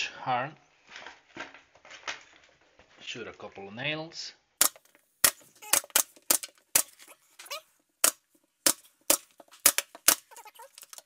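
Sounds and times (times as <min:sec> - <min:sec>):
nail gun firing: 0:04.6 - 0:07.0, 0:08.0 - 0:10.3.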